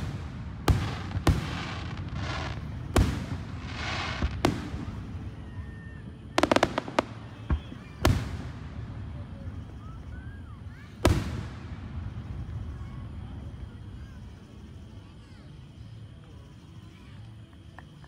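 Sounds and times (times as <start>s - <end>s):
fireworks booming: 0.0s - 5.5s, 6.4s - 13.4s.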